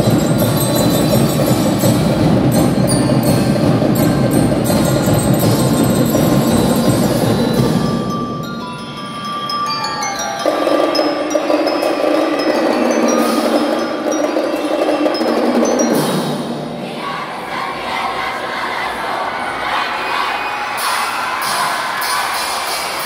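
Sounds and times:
bell lyre melody: 0.0s - 16.6s
drum and lyre corps playing: 0.0s - 18.3s, 20.8s - 23.0s
crowd cheering: 17.0s - 23.0s.

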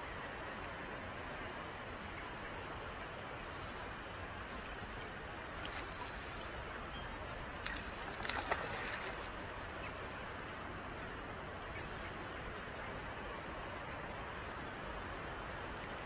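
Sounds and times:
fish splashing at the surface: 7.7s - 9.2s.

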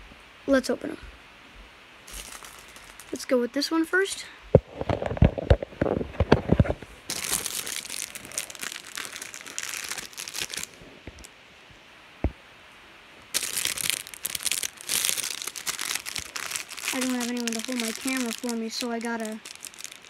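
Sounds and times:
foil wrapper crinkling: 2.1s - 3.3s, 4.8s - 11.3s, 13.3s - 20.0s.

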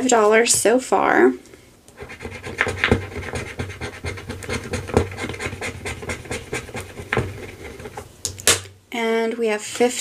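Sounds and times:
coin scratching card: 2.0s - 8.1s.

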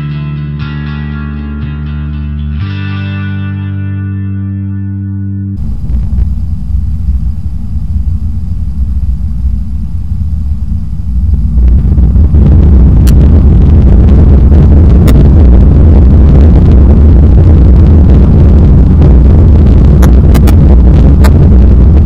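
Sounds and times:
airplane cabin engine rumble: 5.6s - 22.0s.

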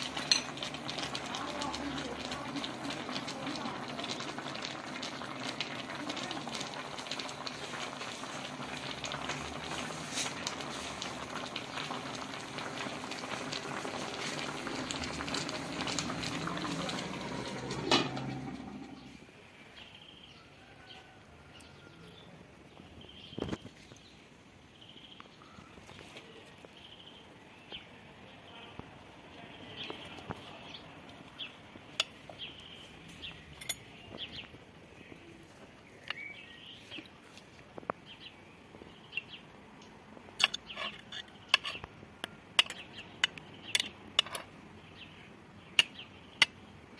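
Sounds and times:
stew bubbling and sizzling: 0.0s - 46.9s
spoon clinking on plates: 0.2s - 0.6s, 42.6s - 44.5s
birds chirping: 14.6s - 46.8s.

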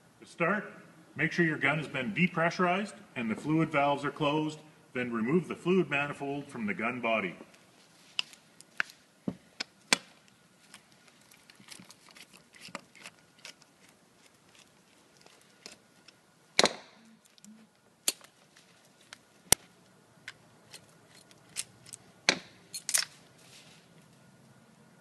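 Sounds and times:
metal parts clicking and knocking: 20.7s - 23.2s.

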